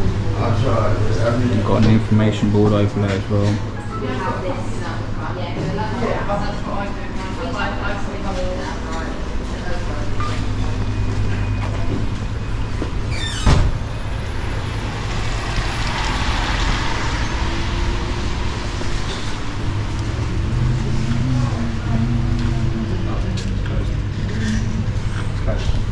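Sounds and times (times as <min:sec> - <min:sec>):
low engine hum of traffic: 0:00.0 - 0:25.9
vehicle tyre noise: 0:10.6 - 0:25.9.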